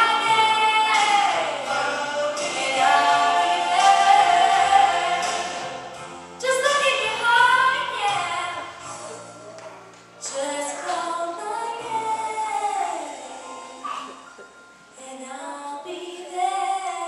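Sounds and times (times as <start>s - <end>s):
group singing worship song: 0.0s - 6.5s
instrumental backing with bass: 0.0s - 11.3s.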